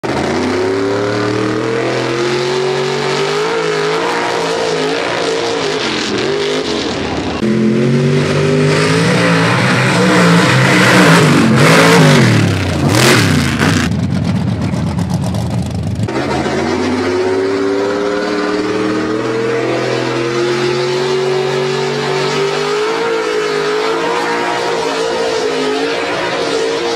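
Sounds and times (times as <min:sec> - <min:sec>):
truck engine revving: 0:00.0 - 0:26.9.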